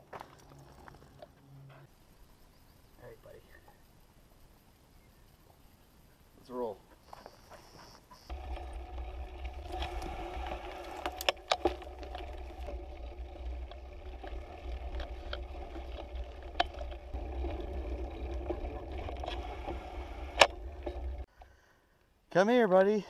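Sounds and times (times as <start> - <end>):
bicycle tyres humming: 7.0 - 21.7
bike knocking and rattling: 8.3 - 21.3
wind and road rumble: 8.3 - 21.3.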